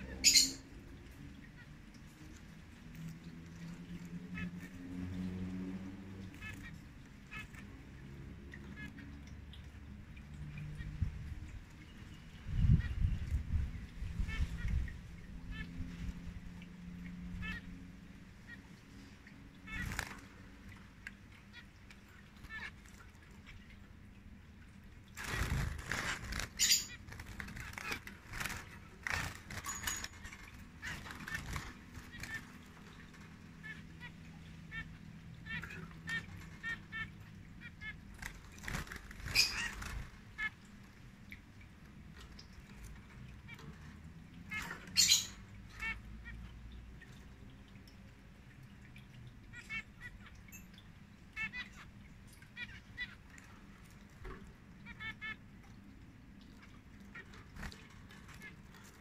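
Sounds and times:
finches giving nasal calls: 0.0 - 0.8, 19.7 - 20.8, 21.4 - 23.8, 25.2 - 38.0, 38.6 - 40.6, 44.5 - 46.4, 51.3 - 54.0
wing flutter: 19.6 - 20.9, 25.1 - 34.1, 37.8 - 40.5.

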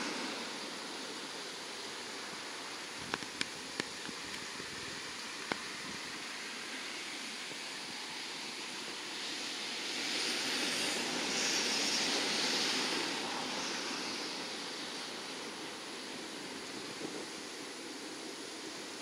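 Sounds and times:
turboprop aircraft roaring: 0.0 - 19.0.

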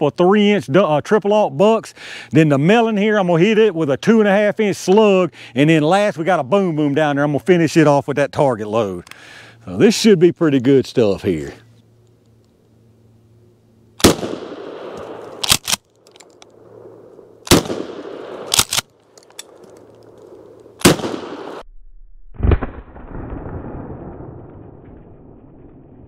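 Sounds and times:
shotgun shots: 14.0 - 15.8, 17.4 - 18.9, 20.8 - 21.6.

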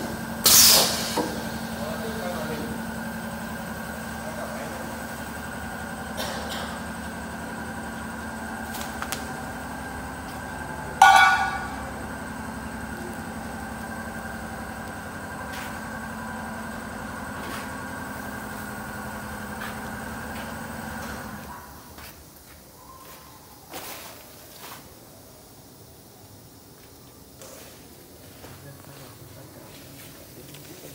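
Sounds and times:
router machinery humming: 0.0 - 21.8
loud pitched blast: 11.0 - 12.2.

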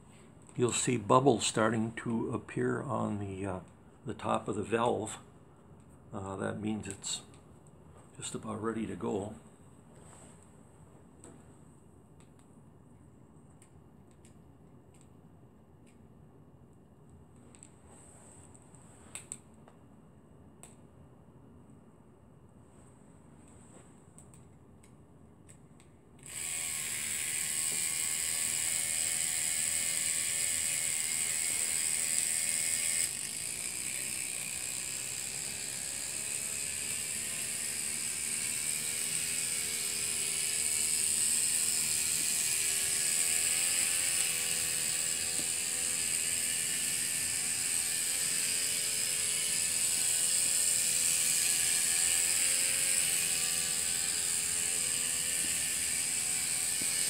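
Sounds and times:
small steam engine running: 26.3 - 57.0.

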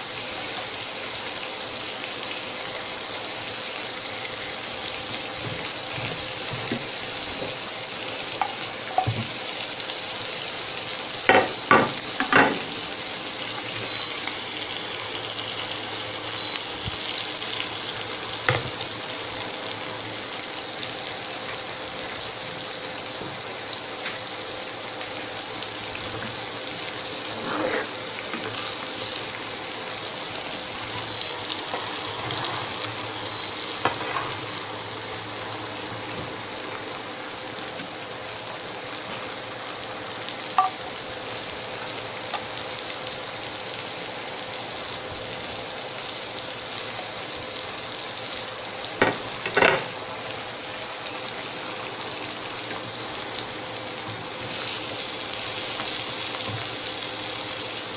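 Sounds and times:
meat sizzling in butter: 0.0 - 57.9.

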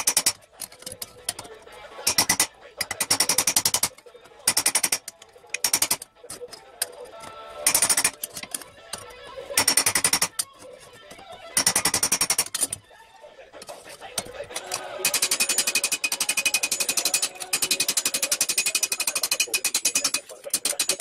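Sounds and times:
hammer tapping on steel: 2.1 - 6.0, 7.7 - 10.6, 14.2 - 21.0.

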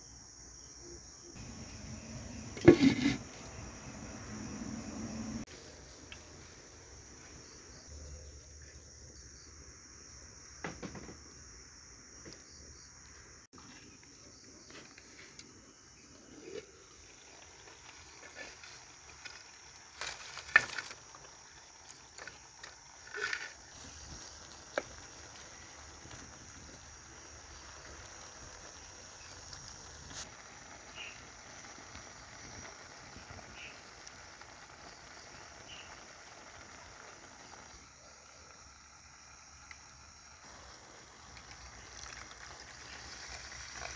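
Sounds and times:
high-pitched insect drone: 0.0 - 5.4
wood fire crackling: 1.4 - 43.9.

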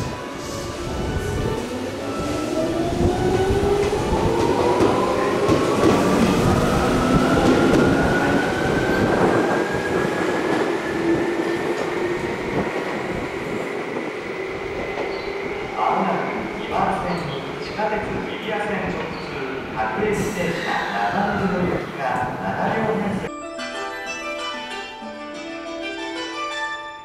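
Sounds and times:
wheels rumbling on rail: 0.0 - 20.3.

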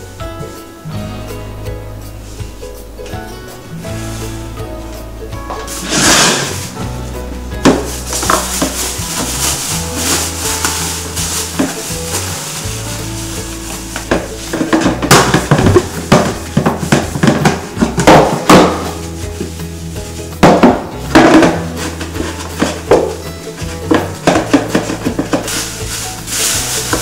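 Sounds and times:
soft background music: 0.0 - 27.0
plastic bin liner rustling: 4.0 - 27.0
cloth wiping plastic lid: 7.7 - 20.6.

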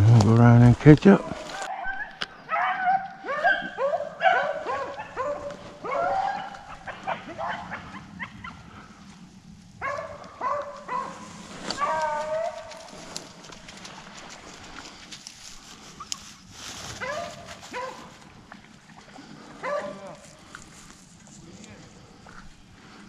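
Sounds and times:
hounds barking: 1.2 - 8.9, 9.8 - 13.0, 16.9 - 18.3, 19.5 - 20.2
hound drawn-out call: 1.5 - 8.6, 9.8 - 13.2, 19.6 - 20.3.

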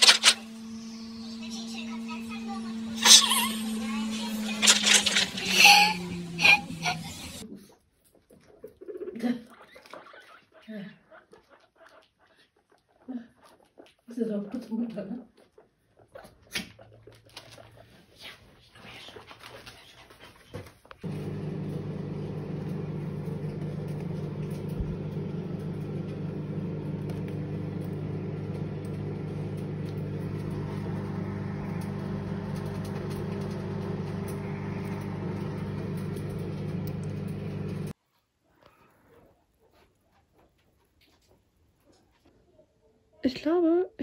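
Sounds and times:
kitchen appliance humming: 0.0 - 7.4, 21.0 - 38.0.

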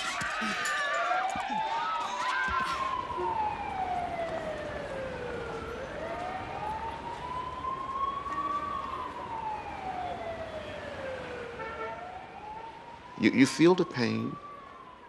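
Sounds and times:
siren wailing: 0.0 - 15.0.

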